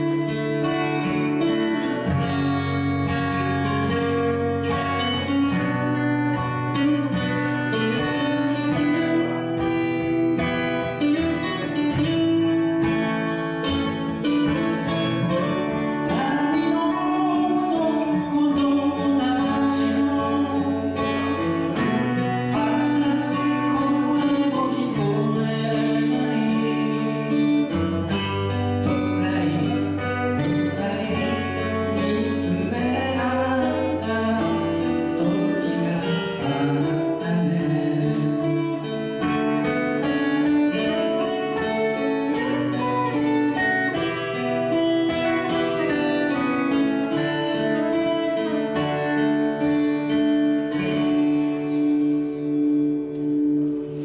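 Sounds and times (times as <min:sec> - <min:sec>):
acoustic guitars playing chords: 0:00.0 - 0:54.0
person singing: 0:15.1 - 0:39.7.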